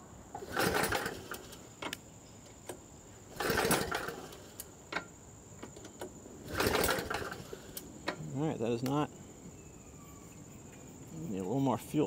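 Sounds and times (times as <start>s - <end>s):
recoil rope pull cranking engine: 0.4s - 1.6s, 3.3s - 4.6s, 6.4s - 7.8s.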